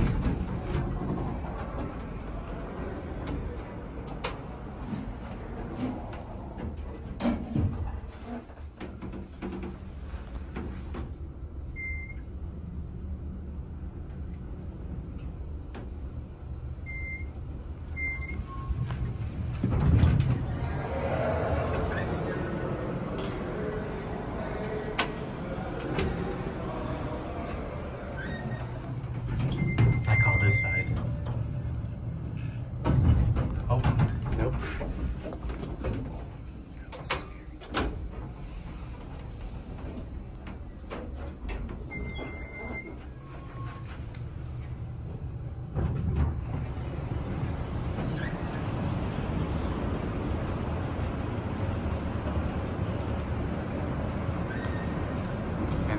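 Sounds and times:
elevator doors closing knock: 0:00.0 - 0:04.6, 0:18.0 - 0:32.1, 0:32.7 - 0:38.3
doors sliding open: 0:00.0 - 0:12.4, 0:15.3 - 0:55.9
elevator car humming: 0:00.0 - 0:55.9
elevator door thump: 0:32.8 - 0:36.2.

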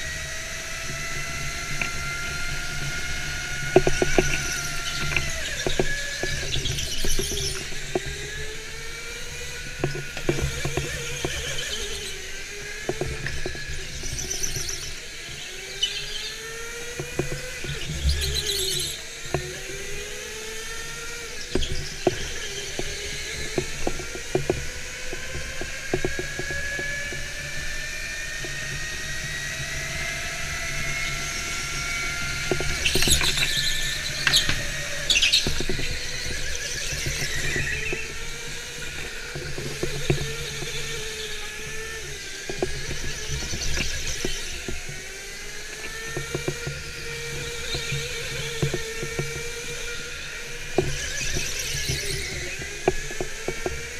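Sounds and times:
electric motor whining: 0:00.0 - 0:53.9
high squeals: 0:30.2 - 0:39.1.

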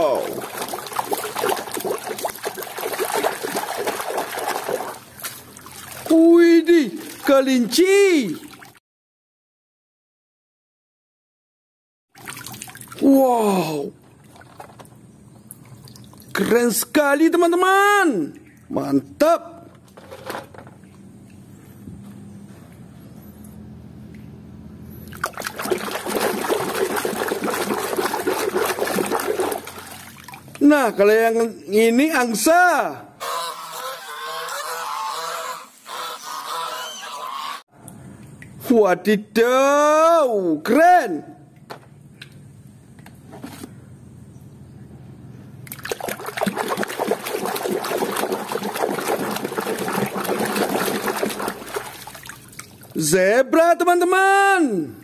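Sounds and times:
water splashing in a plastic basin: 0:00.0 - 0:08.8, 0:12.1 - 0:16.9, 0:25.0 - 0:31.0, 0:45.6 - 0:53.1.

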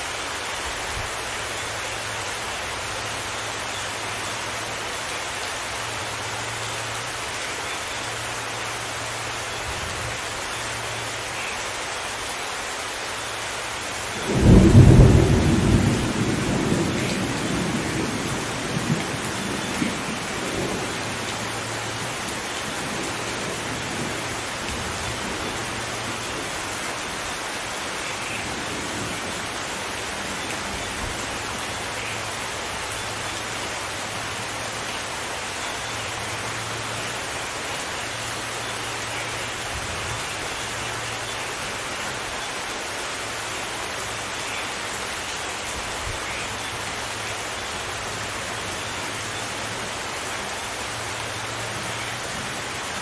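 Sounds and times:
steady rain: 0:00.0 - 0:53.0
thunder clap rumbling: 0:14.3 - 0:21.1.

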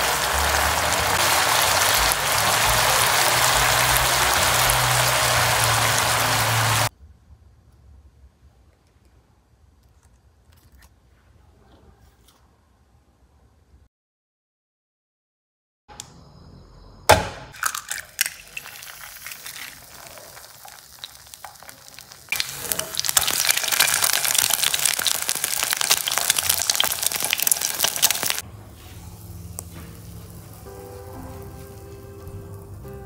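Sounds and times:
egg sizzling in frying pan: 0:00.0 - 0:06.9, 0:17.6 - 0:28.4.

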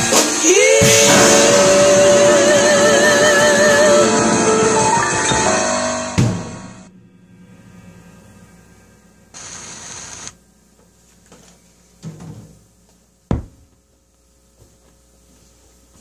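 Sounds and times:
rustling hiss: 0:09.4 - 0:10.4.

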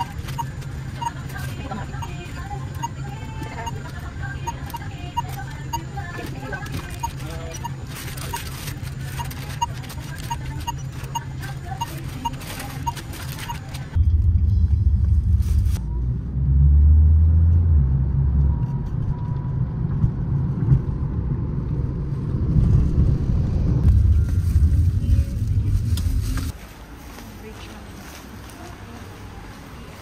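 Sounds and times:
short beeps: 0:00.0 - 0:14.1
car interior rumble: 0:00.0 - 0:26.6.

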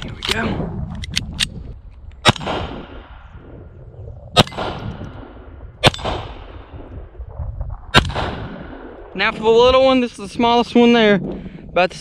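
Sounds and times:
pistol shots with echo: 0:02.2 - 0:03.2, 0:04.4 - 0:06.8, 0:07.9 - 0:09.1.

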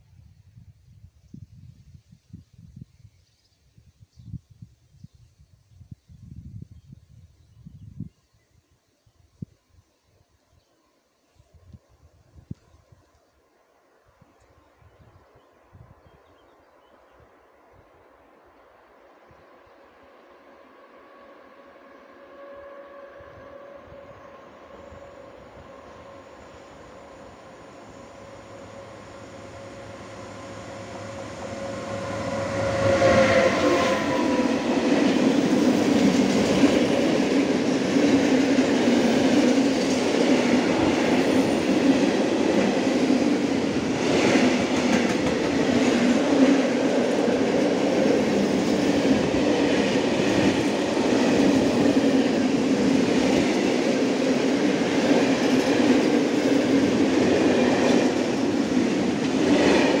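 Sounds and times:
electric locomotive passing: 0:18.0 - 1:00.0
freight train wheels clicking on rails: 0:34.3 - 1:00.0.

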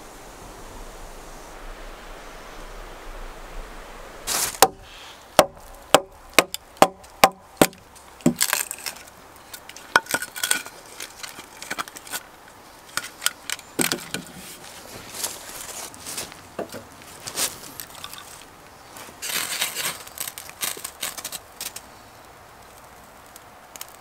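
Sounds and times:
hatchet scraping wood: 0:04.4 - 0:15.3
hatchet chopping wood: 0:04.6 - 0:08.9.

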